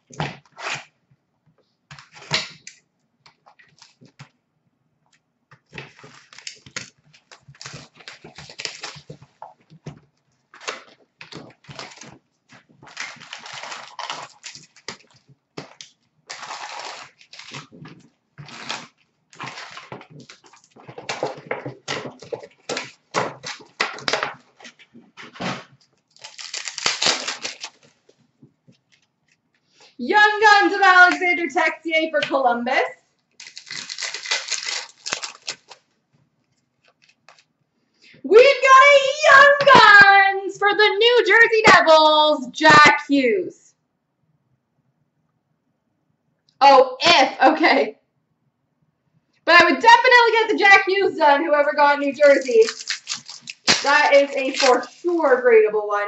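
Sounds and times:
card wrappers crinkling and tearing: 0:05.6 - 0:09.4, 0:10.6 - 0:24.8, 0:25.4 - 0:28.0, 0:33.4 - 0:35.9, 0:36.8 - 0:37.5, 0:52.1 - 0:55.4.

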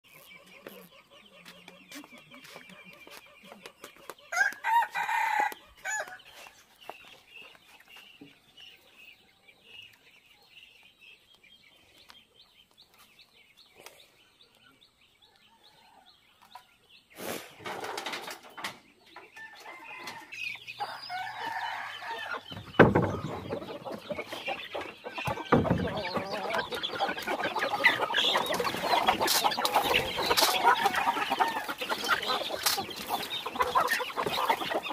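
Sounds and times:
chickens clucking: 0:00.0 - 0:34.9
rooster crowing: 0:04.3 - 0:06.2, 0:19.6 - 0:22.4
thump: 0:22.5 - 0:23.3.

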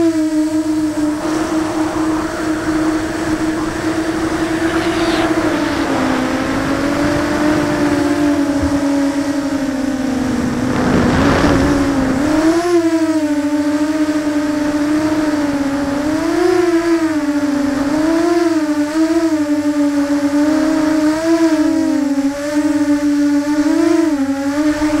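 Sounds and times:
quadcopter motors whining: 0:00.0 - 0:13.7
air rushing over microphone: 0:00.7 - 0:12.6.

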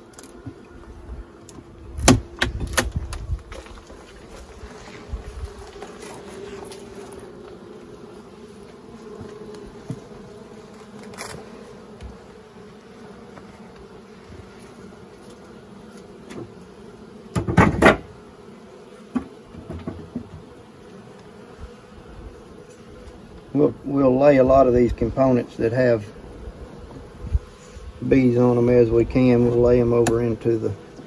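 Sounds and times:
bees buzzing: 0:00.0 - 0:31.0
wooden hive parts clattering: 0:17.3 - 0:18.2, 0:19.0 - 0:21.4.

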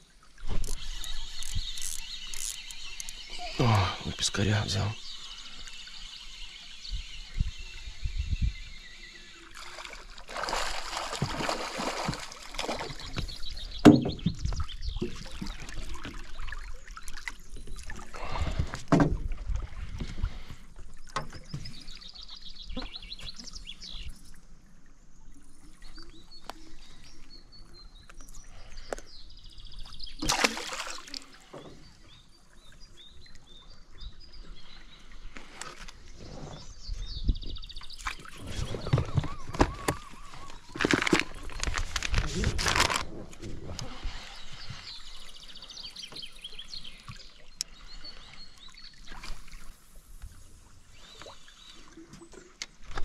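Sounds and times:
birds chirping: 0:00.0 - 0:19.0, 0:20.0 - 0:24.4, 0:25.1 - 0:43.0, 0:43.7 - 0:49.8
water splashing: 0:09.4 - 0:20.5, 0:30.2 - 0:32.1.

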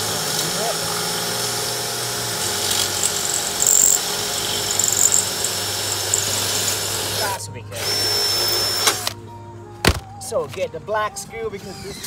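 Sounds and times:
cordless drill boring into brick: 0:00.0 - 0:09.1.

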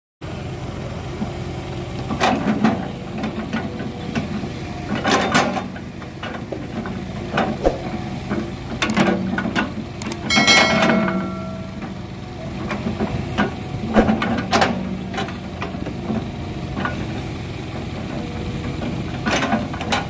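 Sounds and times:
excavator diesel engine running: 0:00.2 - 0:20.0
logs knocking and thudding: 0:14.0 - 0:14.8.

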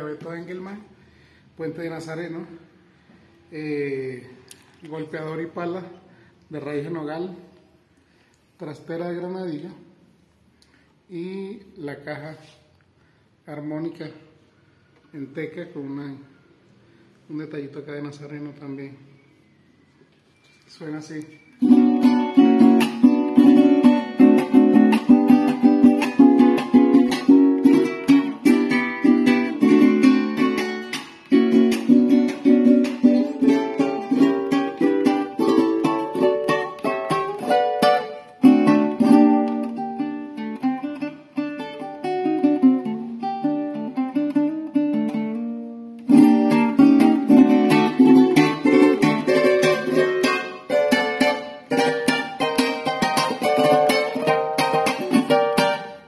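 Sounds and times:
small guitar strummed: 0:21.6 - 0:56.0.

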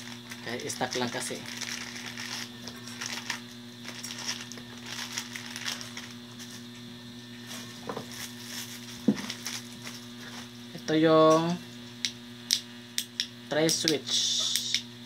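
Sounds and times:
plastic bags crinkling: 0:00.0 - 0:06.7, 0:07.5 - 0:10.5
low electrical hum: 0:00.0 - 0:15.0.

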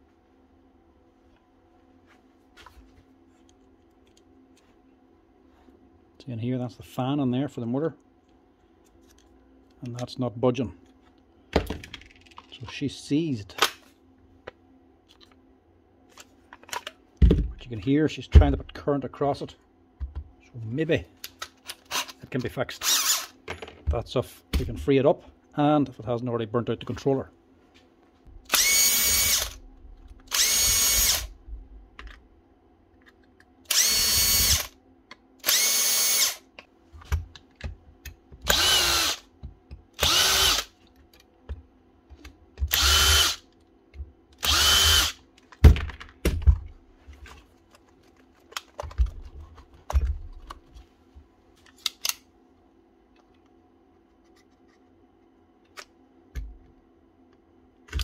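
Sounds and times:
cordless drill short bursts: 0:22.8 - 0:23.3, 0:33.7 - 0:34.7, 0:35.4 - 0:36.4, 0:40.0 - 0:40.7, 0:42.7 - 0:43.4, 0:44.4 - 0:45.2
clicks and knocks of handling: 0:45.4 - 0:50.9.

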